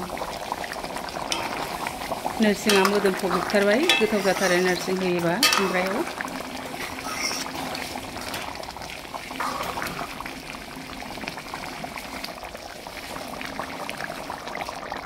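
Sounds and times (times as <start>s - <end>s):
curry bubbling in a pan: 0.0s - 15.0s
ladle scraping pan: 1.3s - 8.6s.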